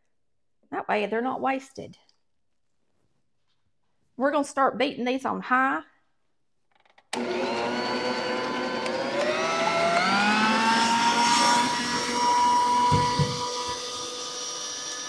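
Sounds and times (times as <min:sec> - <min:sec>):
stand mixer motor whine: 0:07.2 - 0:15.0.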